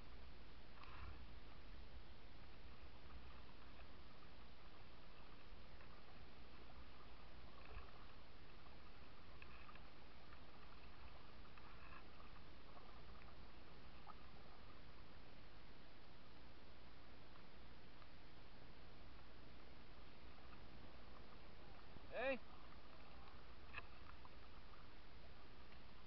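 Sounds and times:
paddle splashes: 3.0s - 14.8s.

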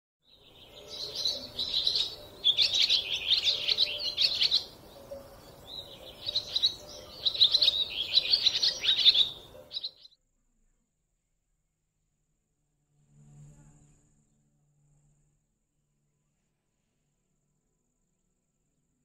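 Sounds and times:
songbirds chirping: 0.2s - 10.2s.

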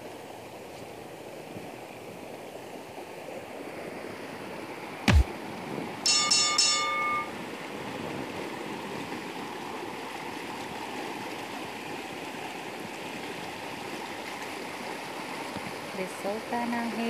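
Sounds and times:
brief chime: 6.1s - 7.4s.

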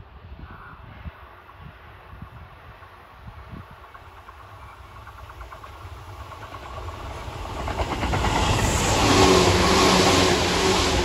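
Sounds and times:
train running gear hum: 0.2s - 11.0s
train wheels clattering on rails: 3.4s - 11.0s.

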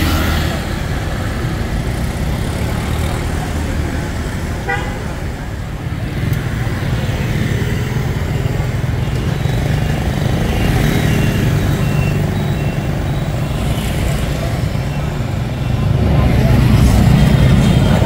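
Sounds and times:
rumble of motorbikes and cars: 0.0s - 18.0s.

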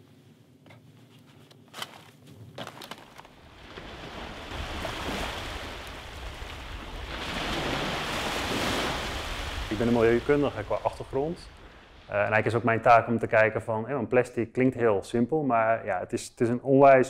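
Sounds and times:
small waves washing on beach: 3.3s - 12.6s.

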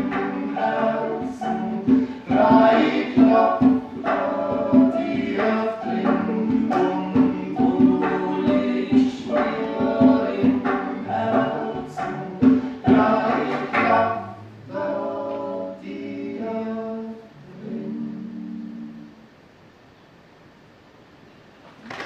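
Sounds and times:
folk band playing: 0.0s - 15.7s
voices singing in harmony: 0.0s - 19.4s.

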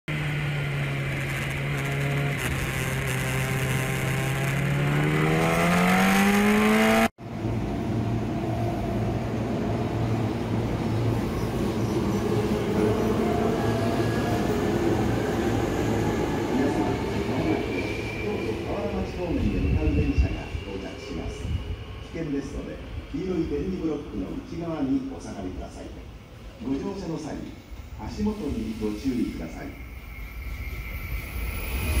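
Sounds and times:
engine revving up: 0.1s - 7.1s
electric train rumble and hum: 0.1s - 32.0s.

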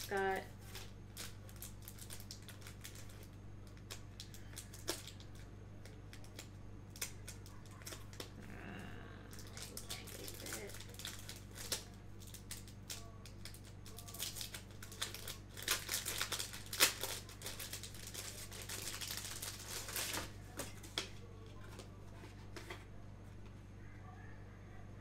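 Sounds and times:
packaging crinkling: 0.0s - 8.4s, 9.3s - 22.7s.

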